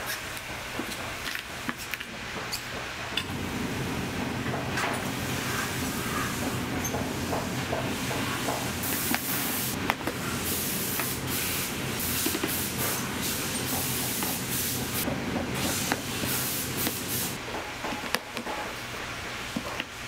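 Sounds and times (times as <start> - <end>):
low machine hum: 3.0 - 17.4.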